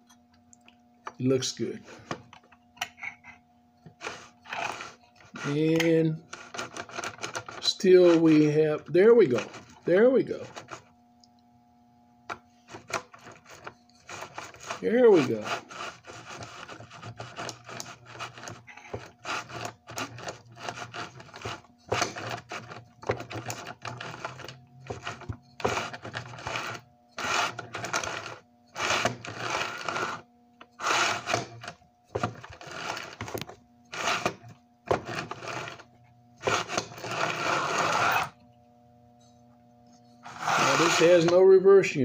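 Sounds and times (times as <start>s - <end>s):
steady hum: 0.0s - 42.0s
toy train motor whirring: 4.0s - 5.6s, 13.9s - 38.4s, 40.2s - 41.3s.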